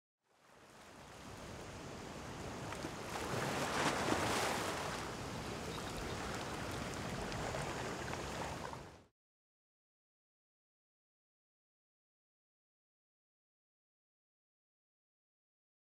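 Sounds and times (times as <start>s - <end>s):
sea waves washing onto beach: 0.4s - 9.0s.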